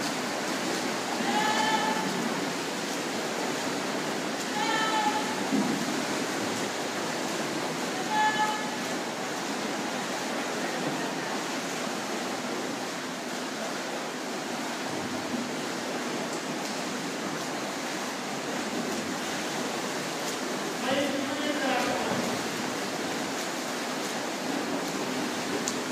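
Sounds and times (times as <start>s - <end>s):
swimmers splashing water: 0.0s - 25.9s
high-pitched shout: 4.5s - 5.4s.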